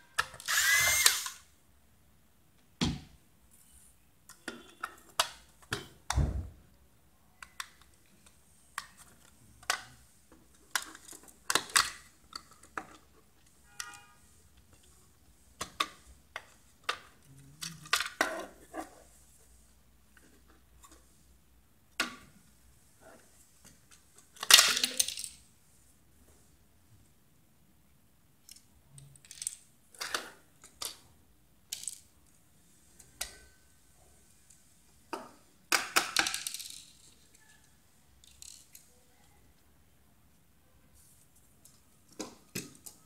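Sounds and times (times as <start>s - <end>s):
plastic parts clicking and clattering: 7.4s - 14.0s, 14.6s - 18.9s, 23.6s - 25.5s, 28.4s - 32.4s, 35.1s - 37.6s, 38.2s - 39.0s.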